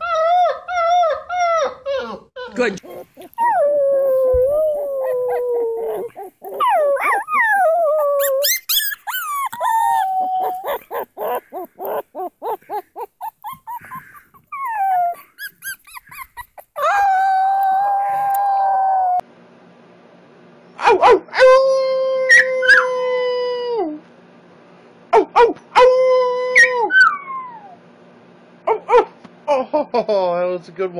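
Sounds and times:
puppy howling: 0.0s - 2.1s, 2.8s - 19.2s, 21.3s - 23.9s, 25.8s - 27.8s
puppy yipping and whimpering: 2.8s - 19.2s, 25.3s - 27.8s.

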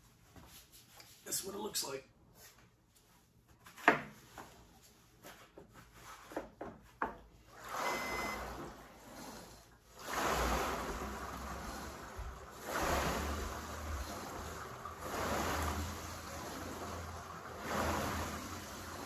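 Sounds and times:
rowing machine water swishing: 7.4s - 19.0s.

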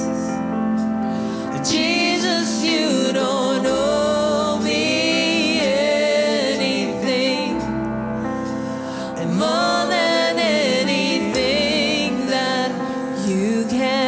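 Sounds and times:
woman singing worship song: 0.0s - 0.4s, 1.2s - 8.0s, 8.6s - 14.0s
sustained keyboard chords: 0.0s - 14.0s.

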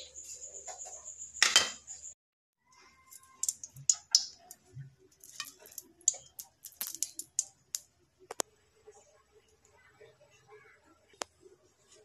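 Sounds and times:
hot oil crackling and popping: 3.1s - 8.5s.

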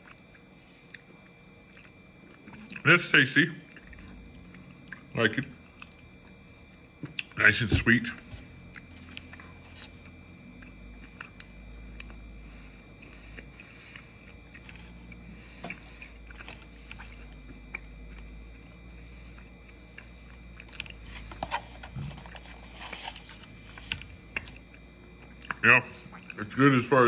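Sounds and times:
person chewing: 0.0s - 3.0s, 3.6s - 7.4s, 8.1s - 26.5s
steady low hum: 0.0s - 27.0s.

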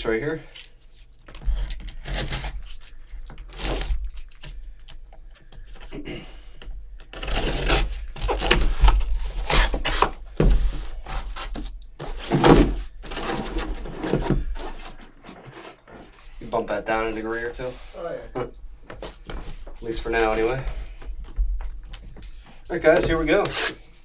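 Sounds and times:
cardboard scraping and tearing: 1.3s - 4.4s, 7.1s - 16.3s, 22.8s - 24.0s.

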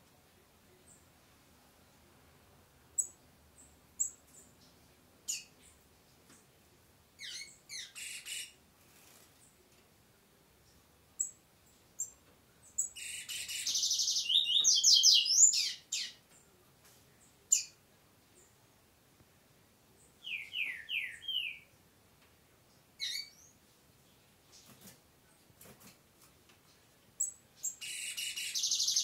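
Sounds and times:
small bird singing: 3.0s - 5.8s, 7.2s - 8.6s, 10.6s - 16.5s, 17.2s - 18.6s, 20.0s - 21.8s, 23.0s - 23.6s, 26.7s - 29.0s.

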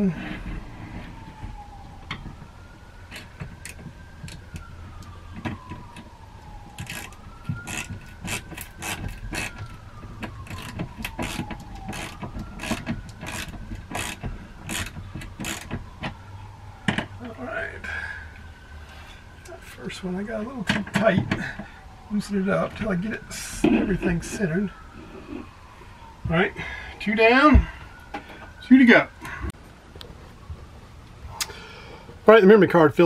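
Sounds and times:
faint siren wailing: 0.0s - 33.0s
ratchet clicking: 10.5s - 15.7s.

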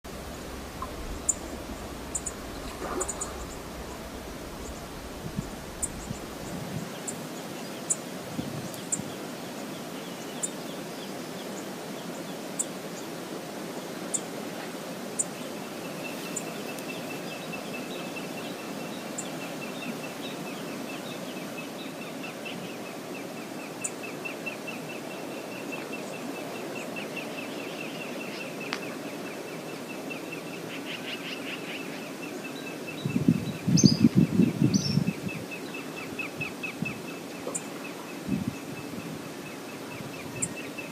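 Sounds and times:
low rumbling burst: 0.0s - 6.9s
water rushing: 0.0s - 8.5s
wind: 0.0s - 40.9s
faint high ticks: 0.7s - 6.2s, 28.7s - 28.9s.

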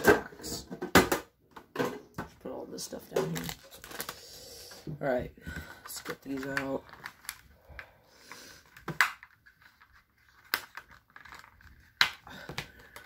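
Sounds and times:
plastic crinkling and scraping: 2.2s - 13.0s
plastic packaging clicks: 3.1s - 4.2s, 5.9s - 7.5s, 8.6s - 13.0s.

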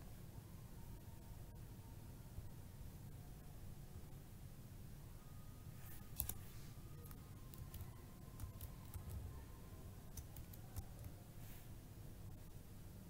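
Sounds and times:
low steady hum: 0.0s - 13.0s
keyboard keystrokes: 6.0s - 6.4s, 7.0s - 9.3s, 10.1s - 11.1s.

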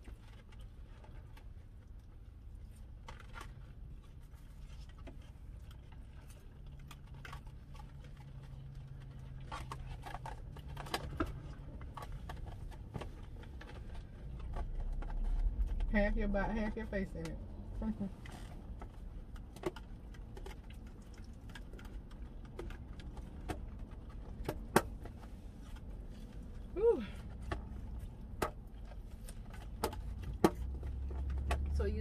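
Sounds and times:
chewing: 0.0s - 15.9s, 18.2s - 31.7s
low car cabin hum: 0.0s - 32.0s.

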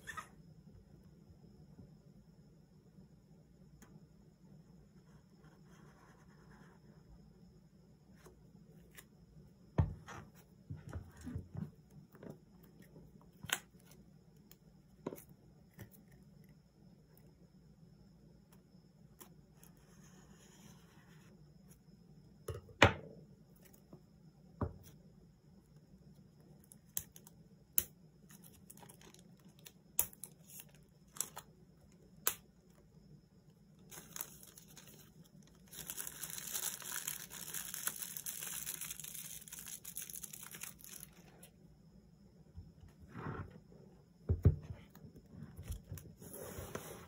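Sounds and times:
plastic wrap crackling: 33.9s - 41.2s
plastic film crinkling: 33.9s - 41.3s.

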